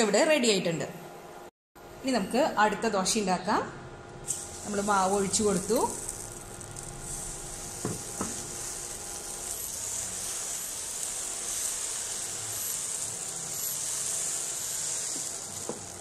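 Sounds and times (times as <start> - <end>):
batter sizzling on a hot pan: 4.2 - 16.0.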